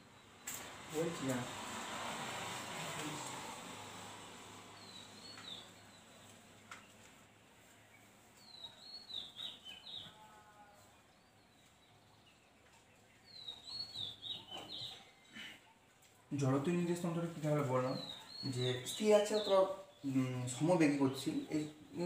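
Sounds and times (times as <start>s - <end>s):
bird chirping: 4.7s - 22.0s.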